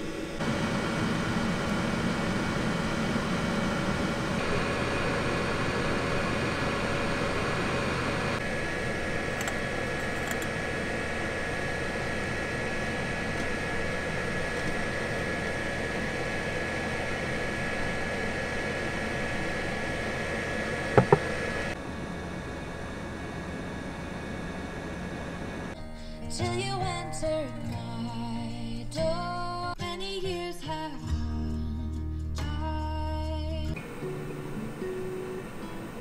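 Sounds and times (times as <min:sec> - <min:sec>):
heater fan humming: 0:00.0 - 0:29.8, 0:32.7 - 0:36.0
glass knocking on wooden table: 0:21.0 - 0:21.3.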